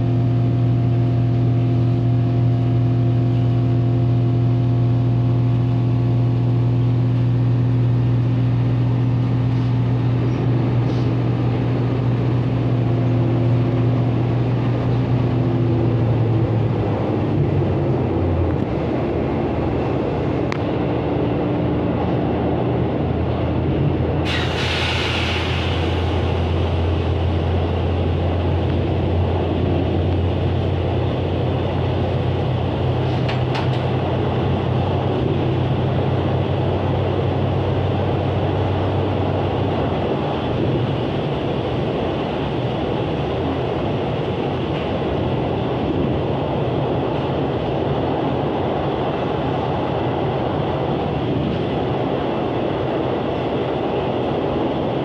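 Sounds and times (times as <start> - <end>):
train engine drone: 0.0 - 55.0
train wheels rolling on track: 0.0 - 55.0
short hiss: 24.3 - 26.2.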